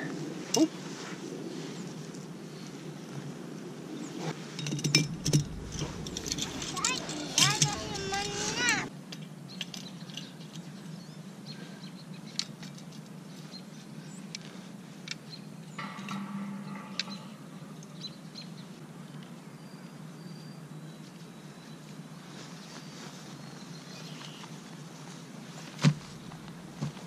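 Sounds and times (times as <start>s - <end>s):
low background hum: 4.7s - 9.0s.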